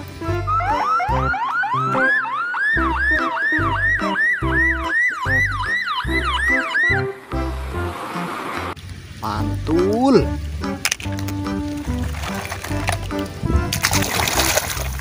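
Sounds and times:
police siren yelping: 0:00.2 - 0:07.4.

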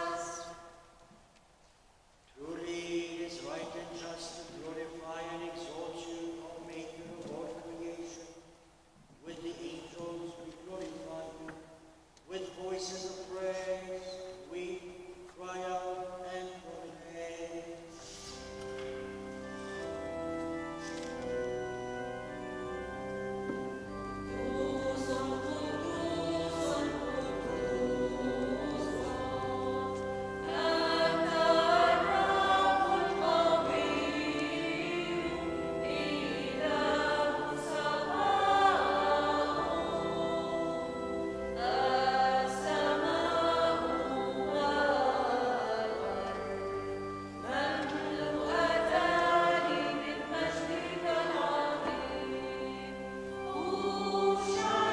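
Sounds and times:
choir singing a hymn: 0:00.0 - 0:00.9, 0:12.4 - 0:54.9
sustained instrumental chords: 0:18.0 - 0:54.9.

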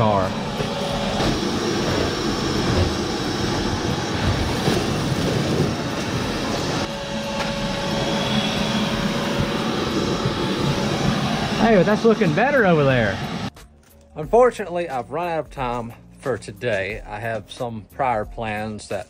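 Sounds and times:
vacuum cleaner running: 0:00.0 - 0:13.5.

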